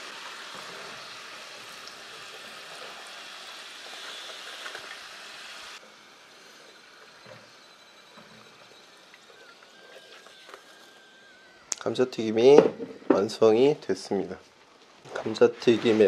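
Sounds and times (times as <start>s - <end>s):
hot oil sizzling: 0.0s - 5.8s.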